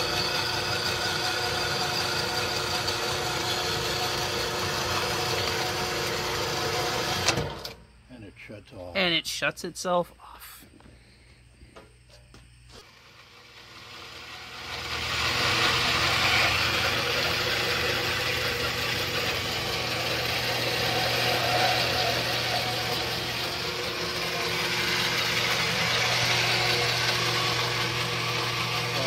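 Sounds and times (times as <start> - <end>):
band saw motor hum: 0.0 - 7.8, 12.7 - 29.0
saw blade cutting metal: 12.8 - 29.0.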